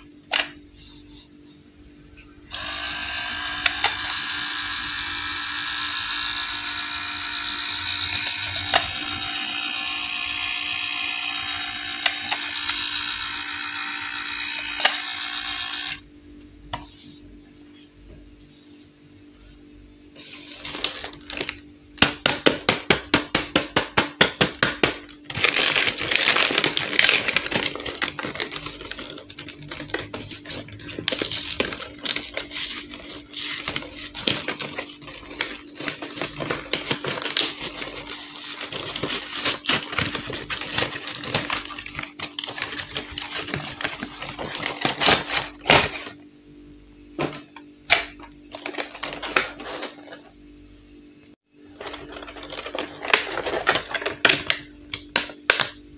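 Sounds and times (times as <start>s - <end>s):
cardboard rustling and scraping: 25.3s - 46.1s, 48.5s - 50.4s.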